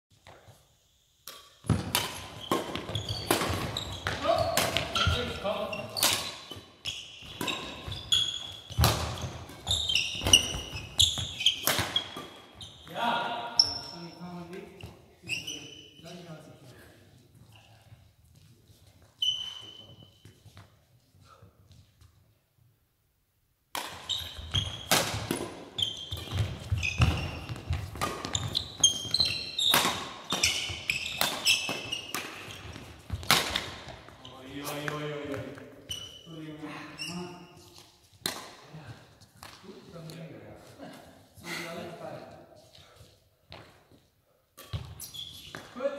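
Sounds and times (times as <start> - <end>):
racket hitting shuttlecock: 1.2 - 6.6, 7.2 - 12.6, 23.7 - 34.0, 38.1 - 38.7
shoes squeaking on floor: 1.6 - 16.3, 17.3 - 22.2, 23.9 - 38.2, 42.5 - 45.9.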